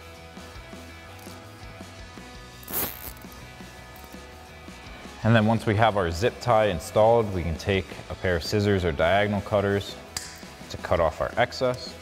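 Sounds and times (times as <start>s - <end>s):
zip tie ratcheting: 2.6s - 3.4s.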